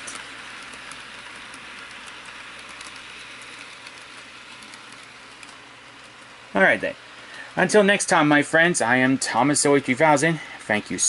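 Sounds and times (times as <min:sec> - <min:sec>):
faint clicks: 0:00.0 - 0:06.4
model train motor whirring: 0:00.0 - 0:11.0.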